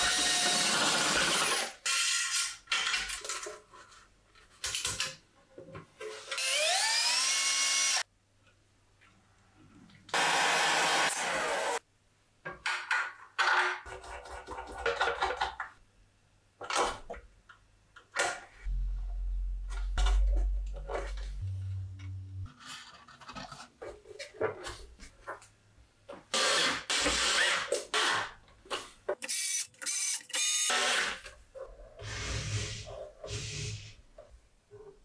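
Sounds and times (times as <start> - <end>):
low hum: 18.7 - 22.5.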